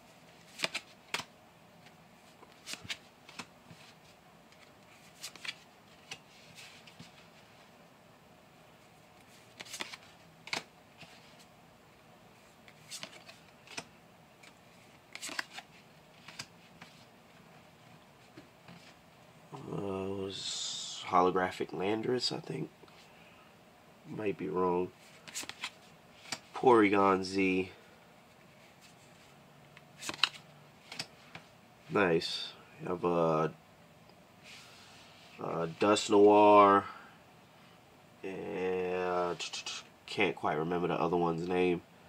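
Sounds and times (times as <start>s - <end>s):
faint room hiss: 0.0s - 42.0s
trading cards snapping and sliding: 0.5s - 1.3s, 2.4s - 3.5s, 4.6s - 6.2s, 9.3s - 10.7s, 12.7s - 16.9s, 25.2s - 26.5s, 30.0s - 31.1s.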